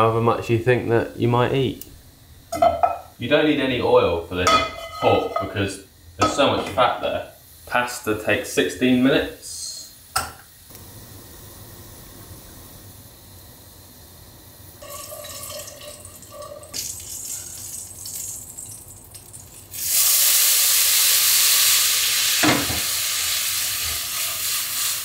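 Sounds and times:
loud steady sizzle: 0:00.0 - 0:25.0
meat frying in fat: 0:02.4 - 0:25.0.

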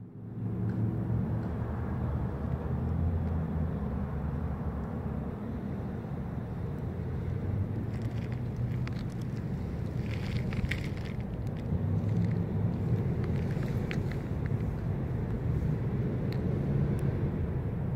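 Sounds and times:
steady low rumble: 0:04.6 - 0:17.9.

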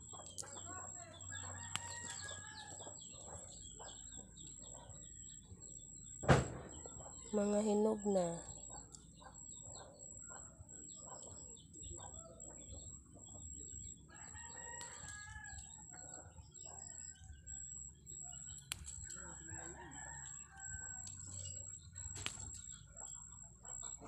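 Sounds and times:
chickens clucking: 0:00.0 - 0:05.8, 0:06.7 - 0:14.0
rooster crowing: 0:01.2 - 0:03.2, 0:14.1 - 0:16.7, 0:19.2 - 0:21.2.

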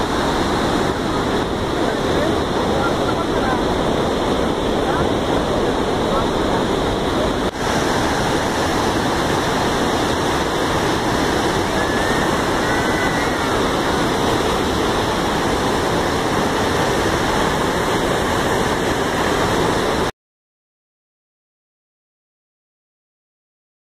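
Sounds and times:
water gushing through spillway: 0:00.0 - 0:20.1.

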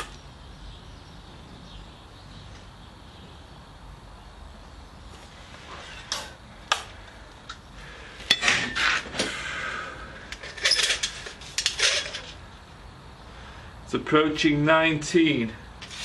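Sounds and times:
metal spring clinking: 0:08.3 - 0:09.0, 0:10.3 - 0:12.4
spring scraping on steel rod: 0:10.3 - 0:12.4.

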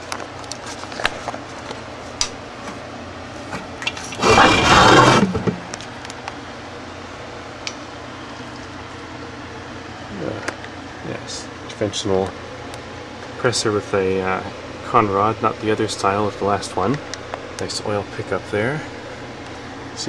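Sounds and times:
loud scrape: 0:04.2 - 0:05.6.

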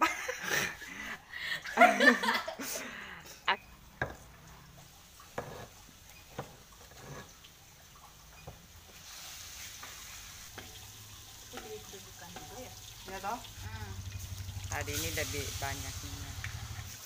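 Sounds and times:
wooden spatula knocking and scraping: 0:04.0 - 0:04.4, 0:05.3 - 0:07.4, 0:09.8 - 0:10.8
food sizzling in a wok: 0:04.2 - 0:07.3, 0:08.1 - 0:17.0.

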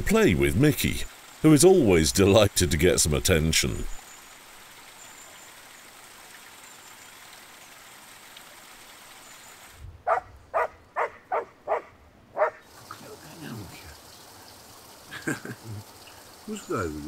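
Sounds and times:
stream rushing: 0:00.0 - 0:17.0
dog yapping: 0:10.1 - 0:12.6.

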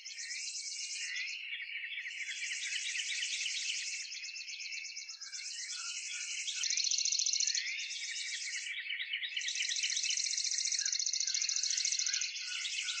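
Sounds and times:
birds chirping: 0:03.5 - 0:13.0.

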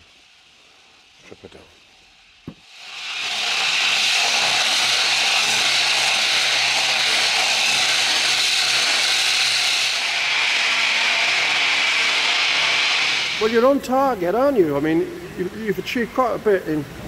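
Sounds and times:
disc grinder grinding paint: 0:02.5 - 0:13.8.

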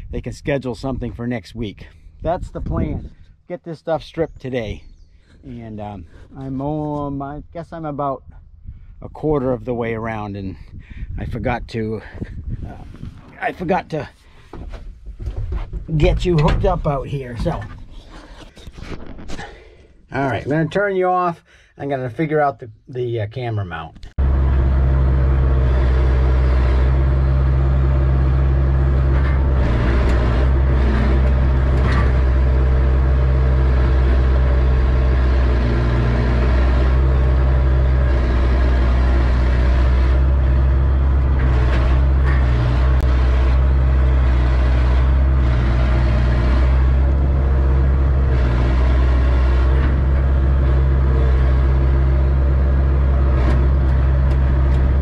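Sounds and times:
excavator diesel engine running: 0:24.2 - 0:55.0.

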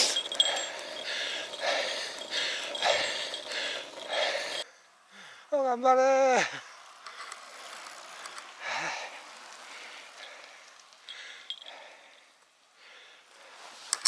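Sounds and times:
freewheel ticking: 0:00.0 - 0:04.6
bicycles going past: 0:00.0 - 0:13.7.

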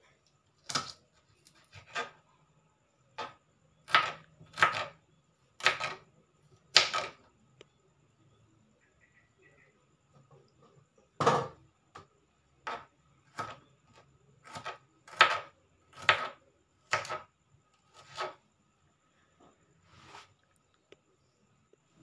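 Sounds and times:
knife chopping on cutting board: 0:03.9 - 0:04.9, 0:05.6 - 0:06.0, 0:14.4 - 0:17.2, 0:18.0 - 0:18.4.

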